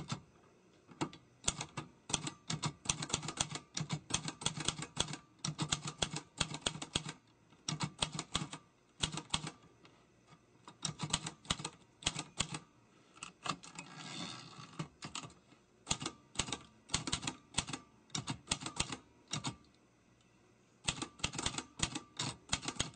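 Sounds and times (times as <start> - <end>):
typewriter keys striking: 20.9 - 22.9.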